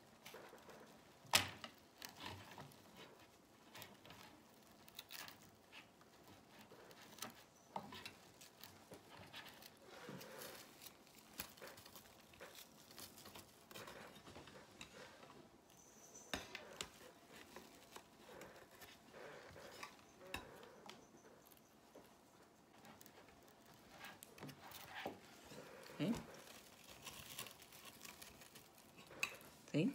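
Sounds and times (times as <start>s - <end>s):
plastic mesh rustling: 0.1s - 14.8s, 22.8s - 29.6s.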